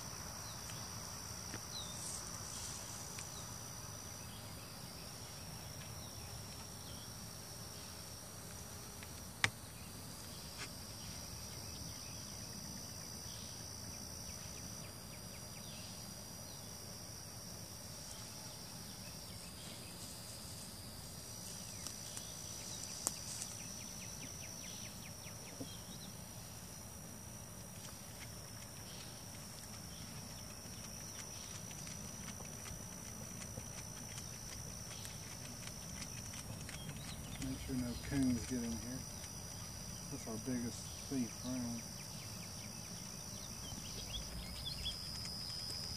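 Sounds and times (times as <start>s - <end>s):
insects trilling: 0.0s - 45.9s.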